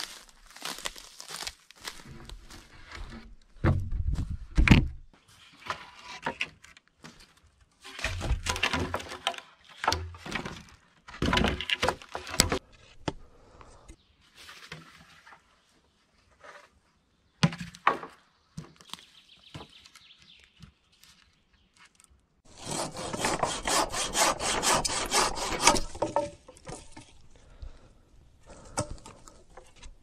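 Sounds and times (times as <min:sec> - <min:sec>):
wooden logs thudding: 0:00.0 - 0:05.1, 0:08.0 - 0:13.2, 0:24.8 - 0:27.6.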